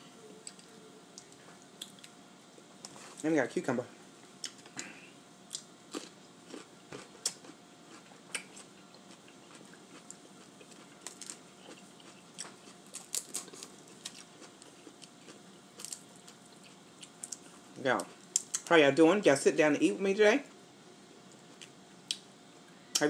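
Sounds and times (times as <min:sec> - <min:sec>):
chewing cucumber: 0:05.5 - 0:17.5
crawfish shells cracking: 0:08.4 - 0:17.4.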